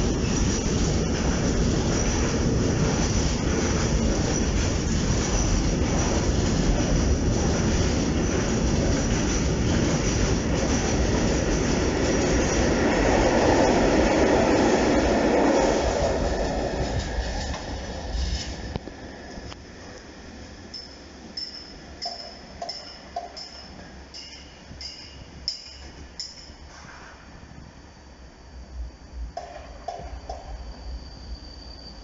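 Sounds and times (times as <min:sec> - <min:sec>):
train wheels rumbling on rail: 0:00.0 - 0:27.6, 0:28.7 - 0:32.0.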